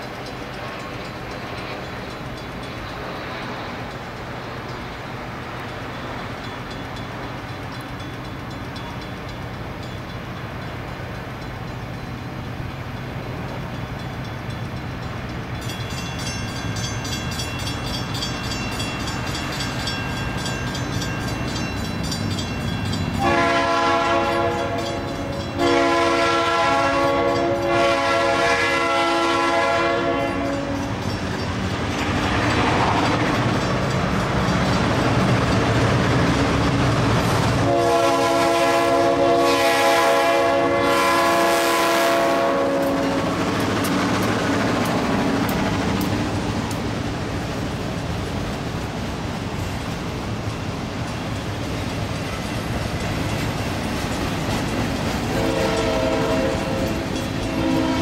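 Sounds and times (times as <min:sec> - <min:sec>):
diesel locomotive engines humming: 0:00.0 - 0:58.0
train wheel noise: 0:00.0 - 0:58.0
train horn blasts: 0:23.2 - 0:31.0, 0:37.6 - 0:43.4, 0:55.3 - 0:58.0.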